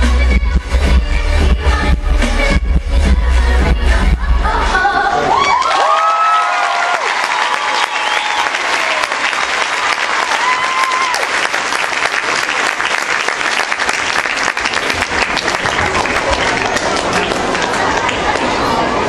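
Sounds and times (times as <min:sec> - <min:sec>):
cheering shouts: 0:05.2 - 0:11.6
audience applauding: 0:05.4 - 0:18.9.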